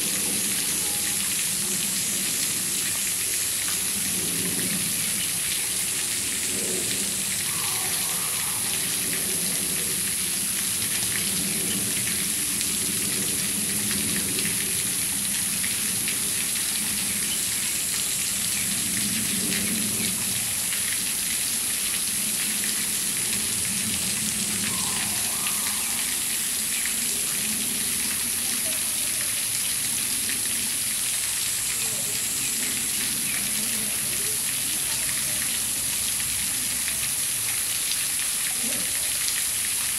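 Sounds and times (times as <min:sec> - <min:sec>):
stream water over rocks: 0:00.0 - 0:39.9
high-pitched hiss: 0:07.1 - 0:10.1, 0:24.5 - 0:26.9.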